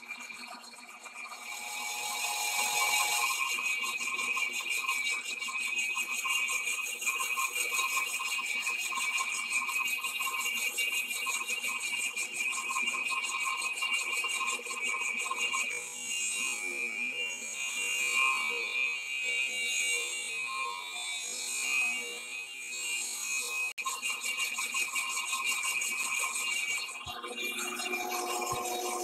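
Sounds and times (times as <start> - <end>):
lathe cutting metal: 1.3 - 5.5, 23.5 - 29.0.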